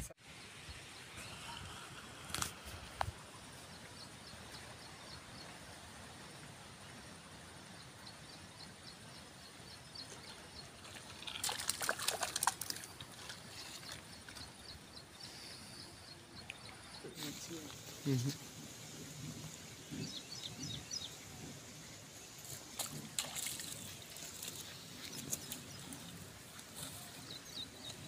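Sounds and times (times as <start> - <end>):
low outdoor hiss: 0.0 - 28.0
fish splashing at water surface: 10.9 - 14.0, 22.7 - 24.7.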